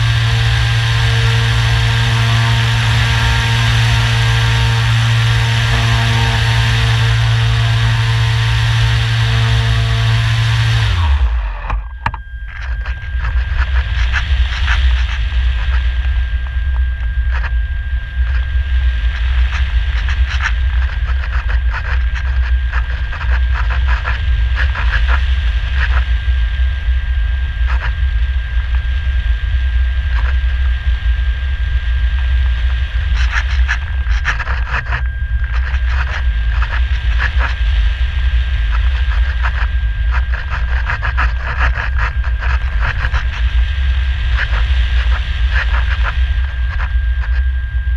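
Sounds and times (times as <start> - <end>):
steady high whine: 0.0 - 47.9
crackling rattles: 32.2 - 37.7, 38.5 - 47.4.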